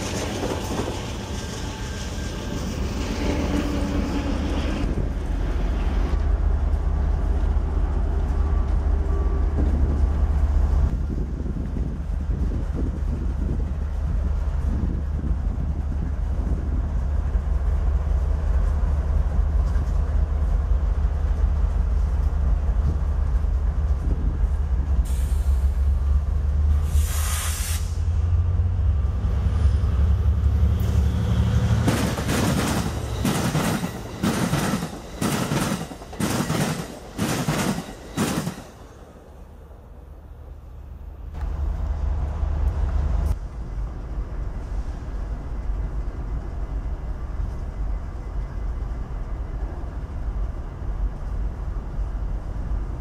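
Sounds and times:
passenger train rumbling: 0:00.0 - 0:53.0
train wheels clattering: 0:30.8 - 0:38.8.

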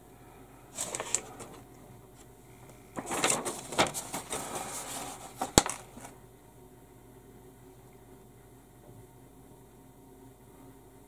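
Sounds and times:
paper rustling: 0:00.8 - 0:01.6, 0:02.9 - 0:06.2.

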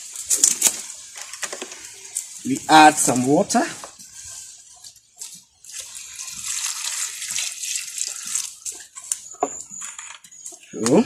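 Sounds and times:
water pouring into bowl: 0:05.2 - 0:09.3.

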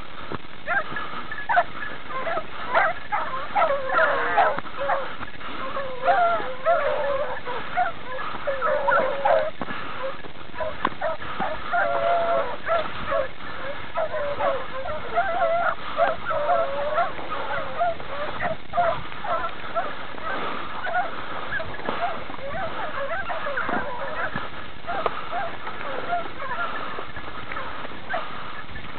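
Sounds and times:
hounds baying: 0:00.6 - 0:28.9.

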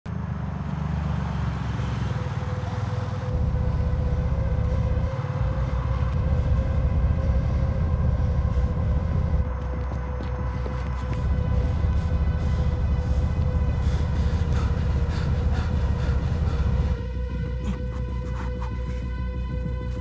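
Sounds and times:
vehicle rumble: 0:00.0 - 0:20.0.

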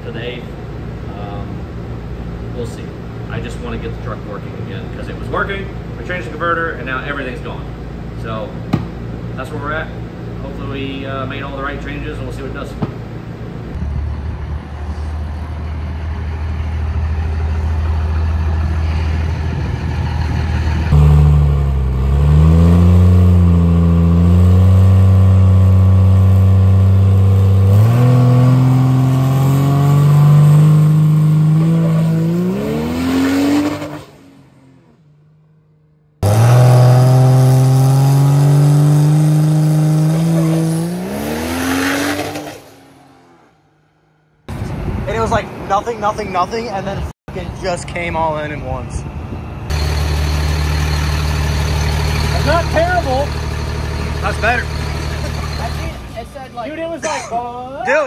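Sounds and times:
diesel truck engine revving: 0:12.5 - 0:44.5, 0:49.4 - 0:56.4.

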